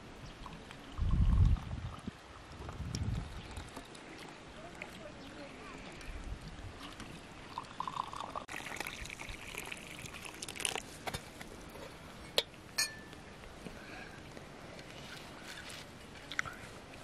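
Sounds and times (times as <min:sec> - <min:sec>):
tea pouring into glass cups: 0:06.9 - 0:13.1.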